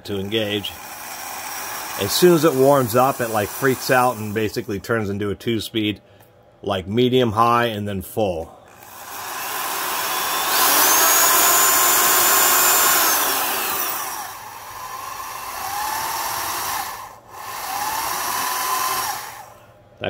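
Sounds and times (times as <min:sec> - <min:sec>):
electric drill motor whining: 0:00.0 - 0:04.6, 0:08.7 - 0:19.6.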